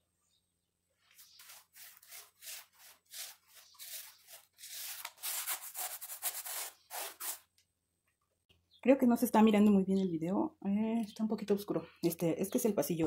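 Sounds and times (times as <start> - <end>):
paint rubbed onto wall scratching: 1.0 - 7.4.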